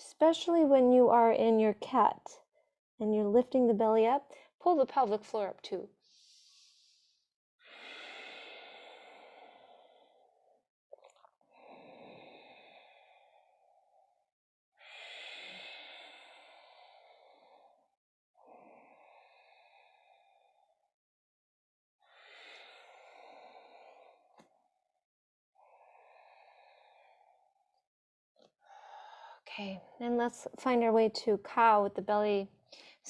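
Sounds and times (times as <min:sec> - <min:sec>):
woman breathing deeply: 0:06.0 - 0:10.6, 0:11.5 - 0:14.2, 0:14.8 - 0:20.9, 0:22.0 - 0:24.6, 0:25.6 - 0:27.8, 0:28.6 - 0:29.5.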